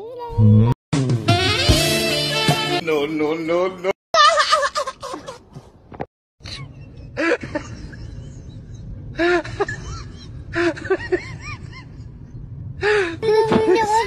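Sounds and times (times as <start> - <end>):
low rumbling background: 6.5 - 14.0.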